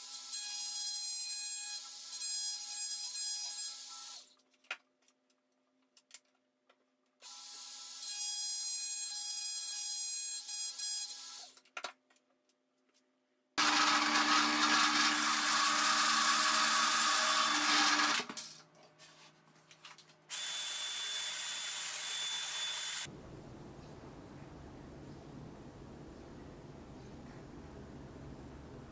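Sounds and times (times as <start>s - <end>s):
drill press boring wood: 13.6s - 18.4s
trim router whining: 13.6s - 18.4s, 20.3s - 23.1s.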